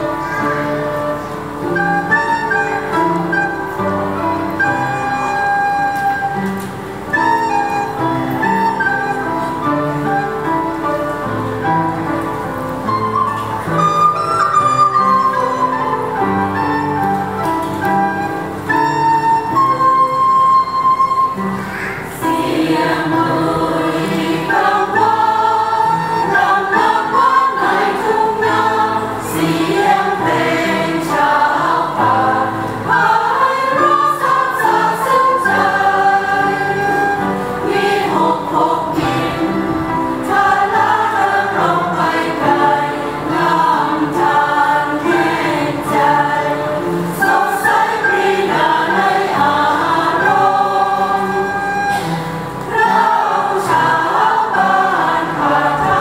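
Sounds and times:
choir singing a hymn: 0.0 - 56.0
end-blown flute playing: 1.6 - 10.8, 12.7 - 39.2, 49.8 - 54.8.

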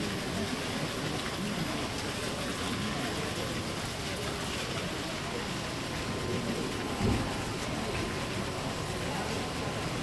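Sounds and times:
fountain water splashing: 0.0 - 10.0.

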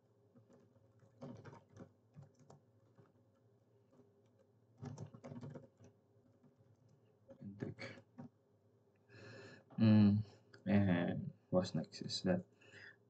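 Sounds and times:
computer keyboard typing: 0.4 - 3.3, 3.9 - 8.3.

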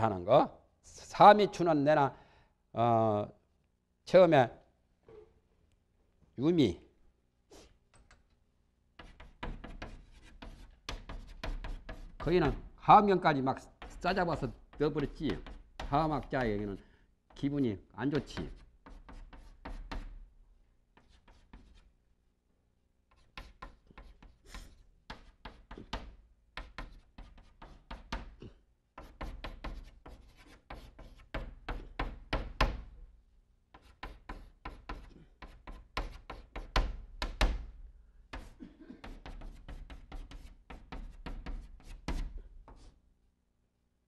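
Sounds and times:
chalk scraping on blackboard: 9.0 - 12.6, 18.2 - 20.2, 21.0 - 21.9, 23.1 - 28.4, 29.0 - 32.2, 33.7 - 37.0, 38.3 - 43.0.

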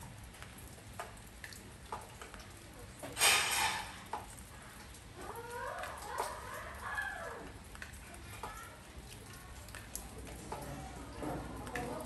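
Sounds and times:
rain patter on a porch: 0.0 - 12.0
drips ticking: 0.1 - 3.2, 4.0 - 12.0.

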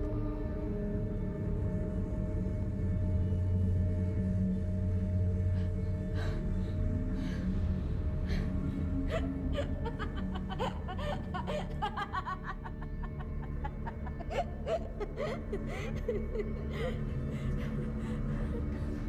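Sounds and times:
dark film score drone: 0.0 - 19.0
woman giggling softly: 9.1 - 17.1.

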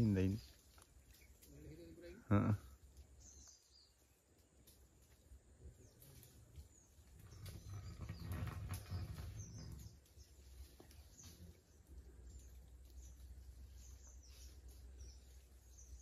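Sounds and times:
faint bird chirps: 0.0 - 16.0.

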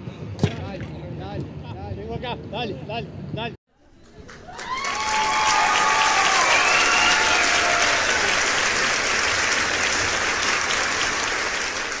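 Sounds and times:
crowd applause: 4.3 - 12.0.

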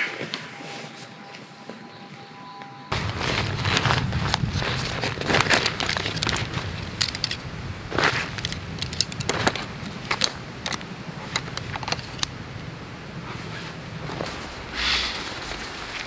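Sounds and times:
nylon fabric rustling: 2.9 - 16.0
pole sections clicking: 4.1 - 12.8.

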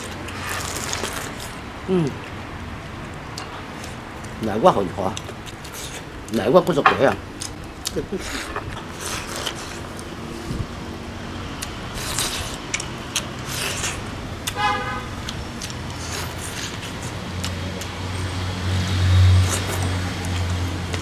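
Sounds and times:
chewing: 0.0 - 2.4, 5.1 - 6.4, 7.4 - 10.1, 11.6 - 14.6, 15.2 - 18.0
low engine drone: 7.2 - 21.0
horn toot: 14.6 - 15.1.

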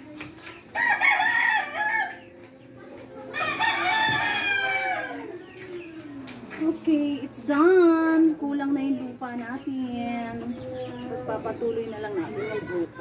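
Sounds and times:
rooster crowing: 0.8 - 2.2, 3.3 - 5.4.

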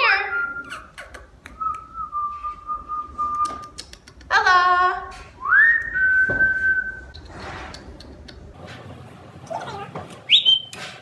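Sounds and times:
person whistling long notes: 5.4 - 7.1.

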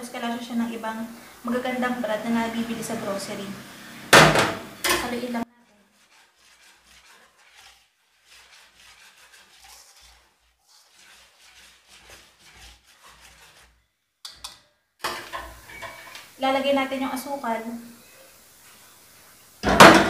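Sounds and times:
dry flour mixing in bowl: 5.0 - 13.9.

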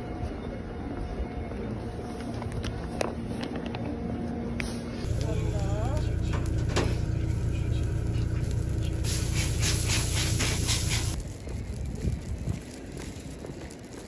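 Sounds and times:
low rumble: 5.0 - 13.2
meat sizzling on a grill: 5.1 - 14.0.

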